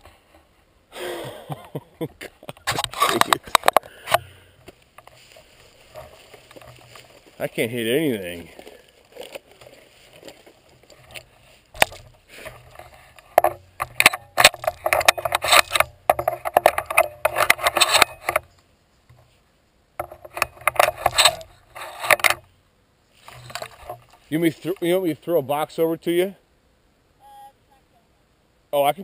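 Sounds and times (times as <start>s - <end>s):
gun handling rustling and clattering: 2.5s - 19.4s, 20.0s - 22.5s, 23.2s - 24.9s.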